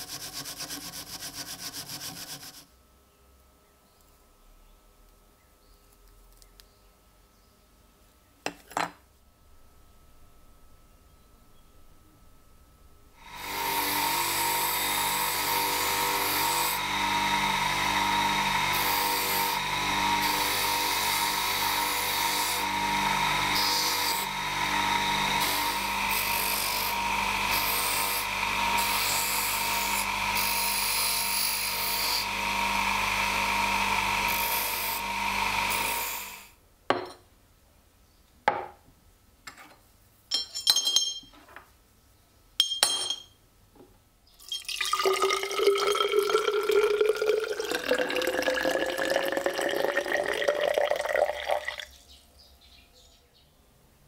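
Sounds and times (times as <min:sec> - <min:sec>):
bench grinder grinding metal: 0:00.0 - 0:02.6, 0:13.2 - 0:36.5
motor hum: 0:13.1 - 0:30.6.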